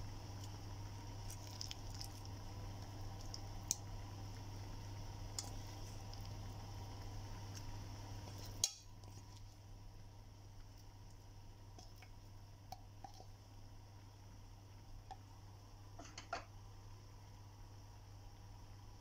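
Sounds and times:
steady low hum: 0:00.0 - 0:19.0
soft wet squishes: 0:00.2 - 0:13.5.

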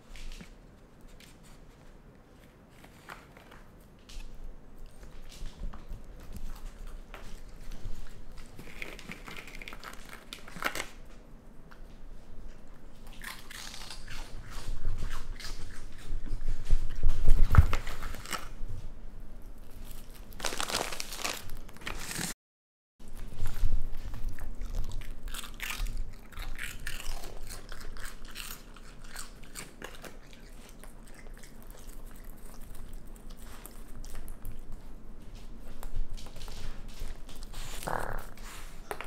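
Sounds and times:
animal crunching and chewing snacks: 0:00.2 - 0:18.6, 0:19.5 - 0:22.3, 0:23.0 - 0:39.0.

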